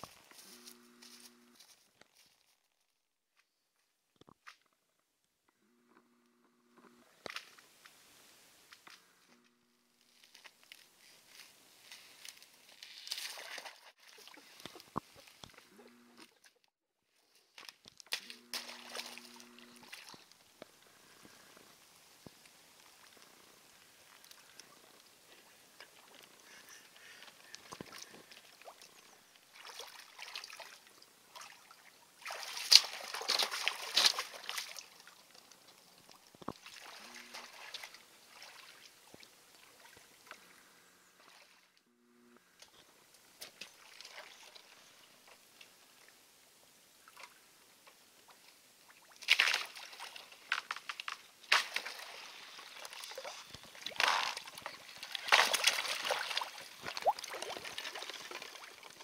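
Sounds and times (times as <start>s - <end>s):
boots wading through icy water: 10.2s - 16.0s, 17.5s - 20.5s, 25.3s - 40.5s, 48.9s - 59.0s
water sloshing and splashing: 12.3s - 16.7s, 17.6s - 20.4s, 25.8s - 40.6s, 43.4s - 46.1s, 48.8s - 59.0s.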